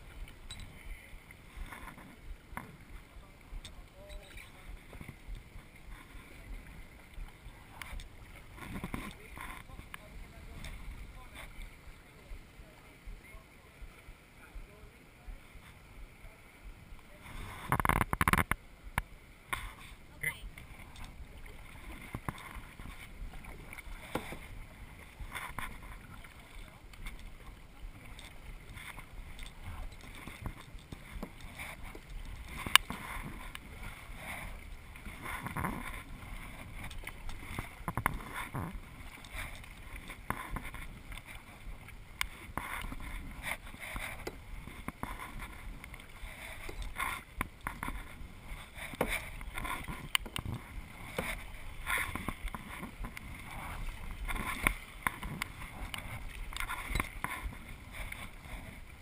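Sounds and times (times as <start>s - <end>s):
paddle splashing in water: 0.0s - 14.5s, 16.9s - 59.0s
paddle knock: 20.5s - 58.5s.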